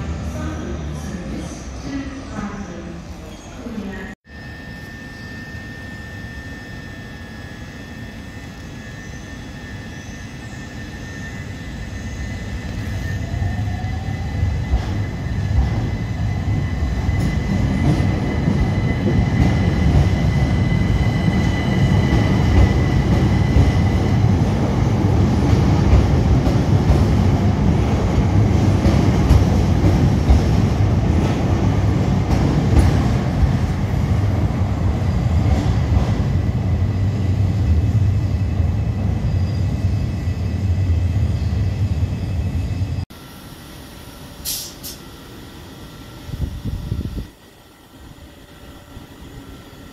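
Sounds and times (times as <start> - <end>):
thin high tone: 4.2 - 12.1
train wheels rumbling: 10.6 - 43.0.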